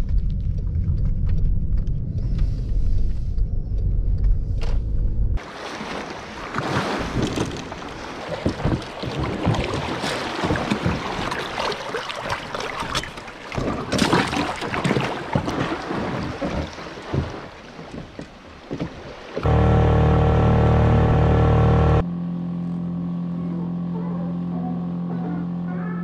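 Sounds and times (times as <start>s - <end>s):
water lapping against boat hull: 5.4s - 19.5s.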